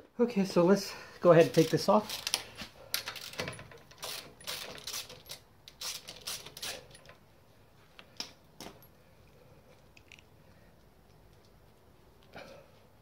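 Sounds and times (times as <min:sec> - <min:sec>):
tools and metal parts clinking: 0:01.4 - 0:07.2.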